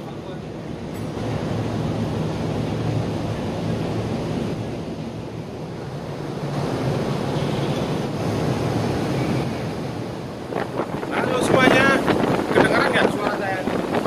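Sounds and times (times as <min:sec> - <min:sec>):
low ship hum: 0:00.0 - 0:14.0
sea noise: 0:00.0 - 0:14.0
wind on microphone: 0:08.0 - 0:14.0.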